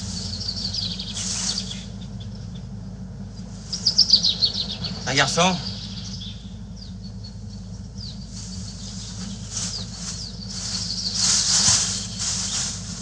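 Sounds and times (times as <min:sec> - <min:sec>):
poultry flapping wings: 0:08.4 - 0:13.0.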